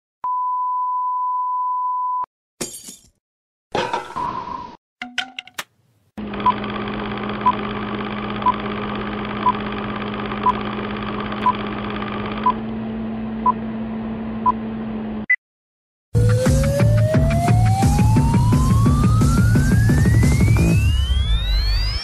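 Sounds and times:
film projector whirring: 6.2 - 13.2.

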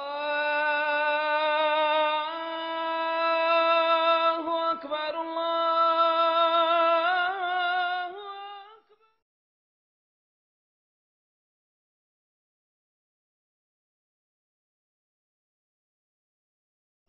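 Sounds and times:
person chanting: 0.0 - 9.2.

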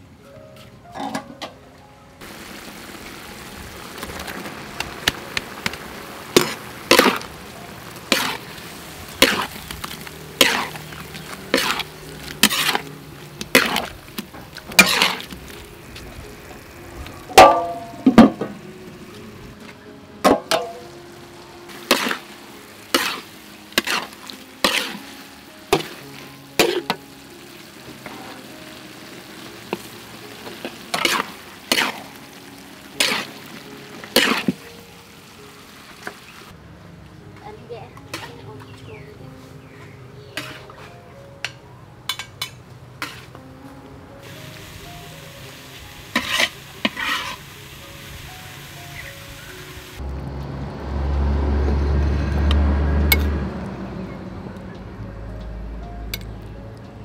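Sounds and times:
food sizzling in a wok: 2.2 - 19.6, 20.2 - 36.5, 44.2 - 50.0
metal spatula scraping a pan: 8.0 - 12.9, 13.5 - 14.0, 14.7 - 15.4, 21.8 - 22.3, 22.9 - 25.1, 30.6 - 32.2, 33.0 - 33.4, 34.1 - 34.6, 40.3 - 41.0, 42.1 - 43.4, 46.1 - 47.5
ringing metal clangs: 17.4 - 18.5.

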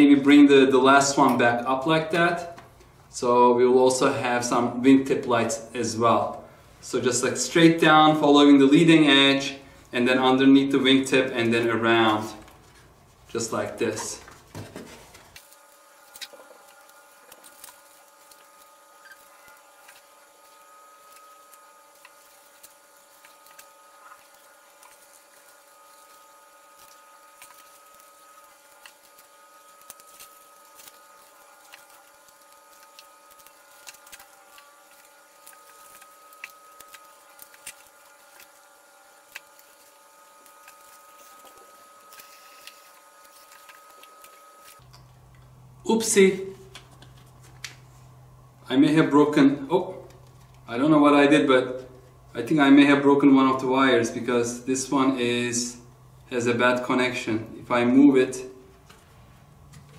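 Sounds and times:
hands clicking and rustling wires: 14.0 - 45.5.

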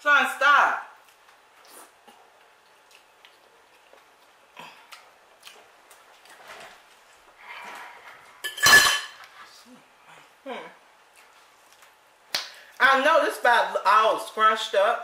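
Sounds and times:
mouth clicks and smacks chewing: 1.0 - 6.0.

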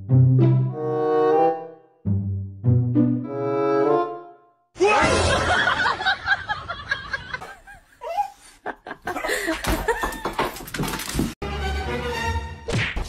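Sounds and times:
people laughing: 4.9 - 10.6.

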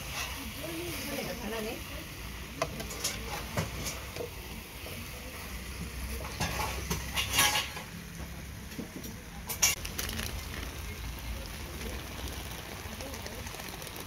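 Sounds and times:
metal spatula scraping a frying pan: 0.0 - 1.0, 6.2 - 8.0.

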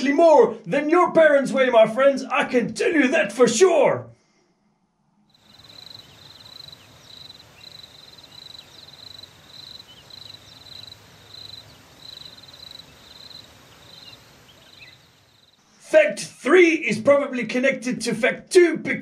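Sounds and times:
soft outdoor hiss: 4.1 - 17.4
insect chirping: 5.2 - 15.8.

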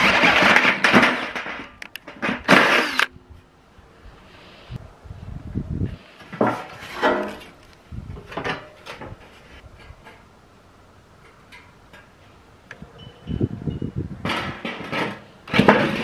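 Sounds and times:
scrapes and knocks: 6.2 - 7.6, 14.2 - 16.0.

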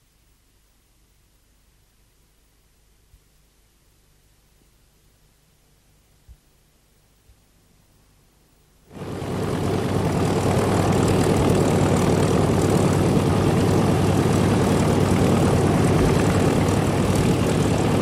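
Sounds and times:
piston aircraft engine running: 8.9 - 18.0.

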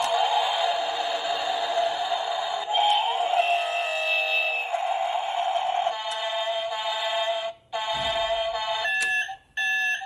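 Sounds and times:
electronic alarm beeping: 2.6 - 6.4, 7.9 - 10.0.

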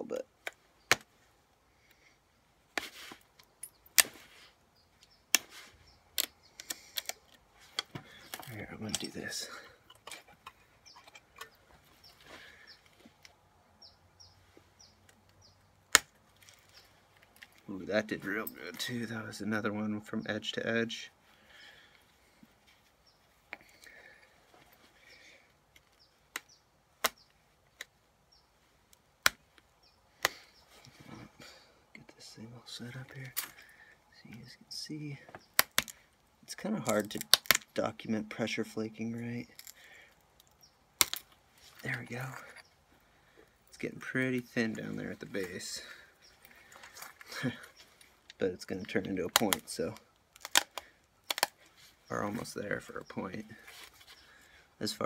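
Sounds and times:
stone flakes snapping: 35.6 - 36.0, 36.9 - 37.7, 39.6 - 41.4, 50.3 - 51.6.

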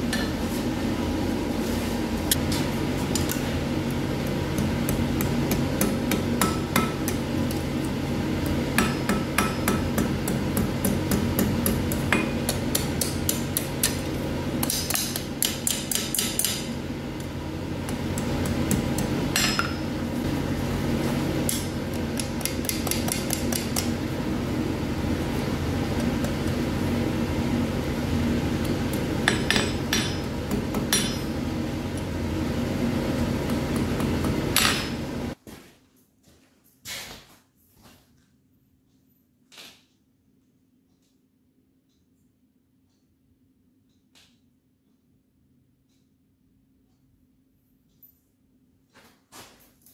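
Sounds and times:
hammer striking hot iron on anvil: 4.5 - 7.6, 8.4 - 16.8, 17.8 - 20.0, 21.4 - 24.1, 28.6 - 31.6, 33.4 - 35.2.

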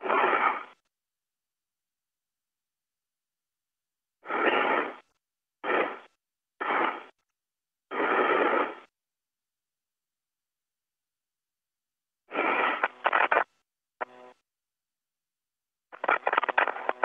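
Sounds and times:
radio hiss bursts: 4.2 - 7.2, 7.9 - 8.9, 12.3 - 14.2, 15.9 - 17.0.

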